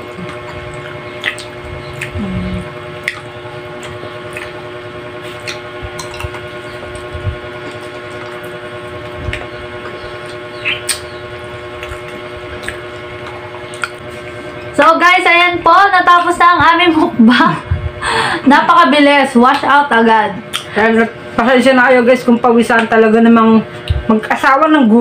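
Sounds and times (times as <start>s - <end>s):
chewing and lip-smacking: 0.0s - 14.8s, 20.4s - 21.0s
steady electrical hum: 0.0s - 25.0s.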